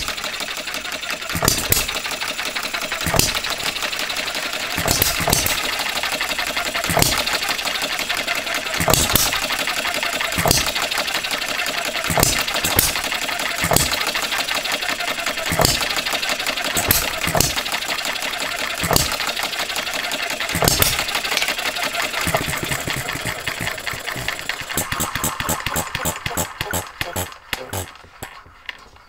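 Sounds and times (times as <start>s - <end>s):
engines clattering: 0.0s - 29.0s
sharp engine firing bangs: 2.9s - 14.4s, 15.2s - 17.8s, 18.7s - 19.4s, 20.4s - 28.0s.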